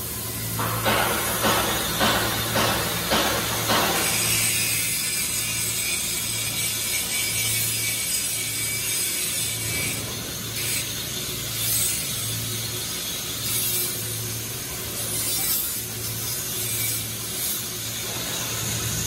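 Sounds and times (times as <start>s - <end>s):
scraping strokes on metal pipe: 0.6s - 19.0s.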